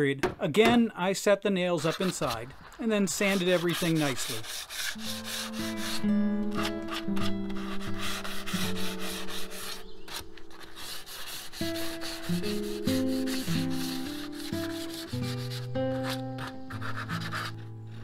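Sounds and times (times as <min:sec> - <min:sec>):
sandpaper rubbing on wood: 0:01.8 - 0:06.0, 0:06.6 - 0:18.0
background music with held notes: 0:04.9 - 0:18.0.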